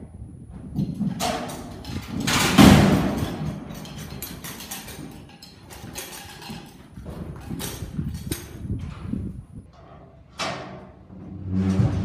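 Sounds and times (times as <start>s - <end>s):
hooves pounding in dirt: 0.4s - 10.3s
irregular thuds: 0.5s - 10.0s.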